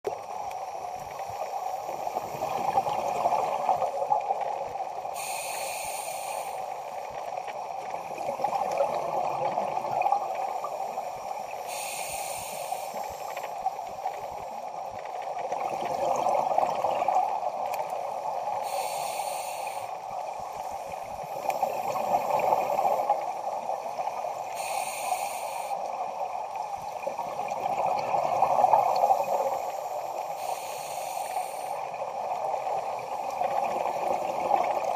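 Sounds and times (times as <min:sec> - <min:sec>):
exhaled bubbles gurgling: 0:00.1 - 0:05.4, 0:06.4 - 0:12.2, 0:13.0 - 0:24.8, 0:25.8 - 0:30.5, 0:31.4 - 0:34.9
regulator inhale hiss: 0:05.1 - 0:07.2, 0:10.5 - 0:14.8, 0:18.4 - 0:21.9, 0:22.6 - 0:26.0, 0:29.2 - 0:32.0.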